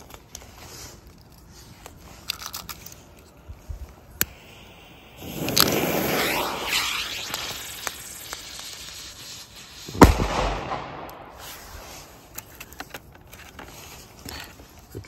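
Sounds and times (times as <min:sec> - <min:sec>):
fuse hissing: 0:04.2 - 0:12.2
firecracker bang: 0:05.2 - 0:09.1, 0:09.9 - 0:11.8.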